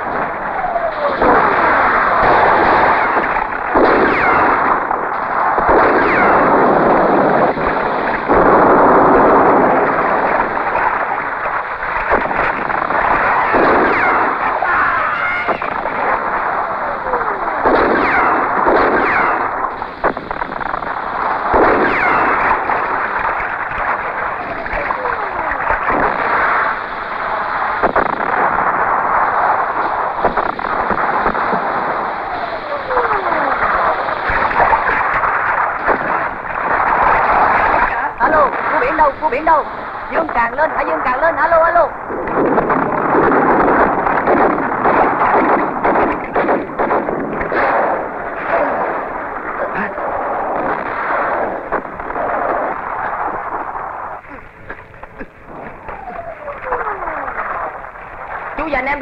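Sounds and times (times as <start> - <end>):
explosions: 0.0 - 59.0
gunfire: 0.0 - 59.0
sharp cracks: 0.0 - 59.0
falling whistles: 21.8 - 22.4, 55.5 - 57.8.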